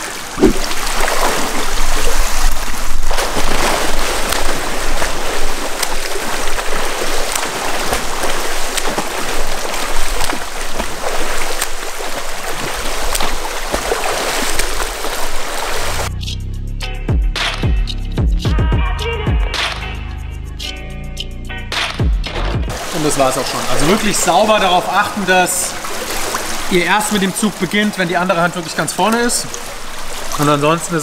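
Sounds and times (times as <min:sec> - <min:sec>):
hands and feet slapping water: 0:00.0 - 0:16.1, 0:22.7 - 0:31.0
swimmer splashing in pool: 0:00.0 - 0:16.1, 0:22.7 - 0:31.0.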